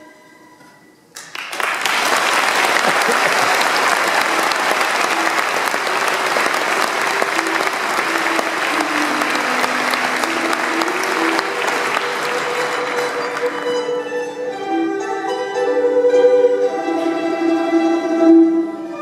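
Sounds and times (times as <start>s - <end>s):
audience applauding: 1.2s - 14.1s.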